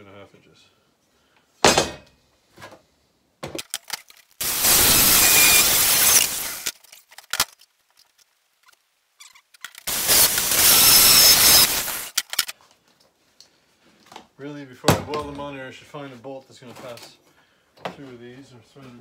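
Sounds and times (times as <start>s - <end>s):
power tool cutting steel: 4.4s - 6.8s, 9.9s - 12.4s.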